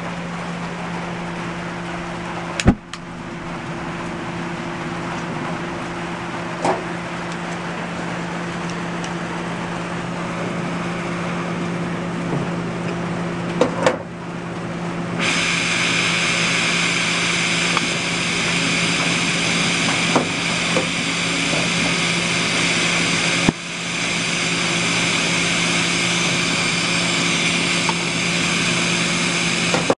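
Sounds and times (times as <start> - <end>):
low steady hum: 0.0 - 15.3
gas torch flame hissing: 15.2 - 30.0.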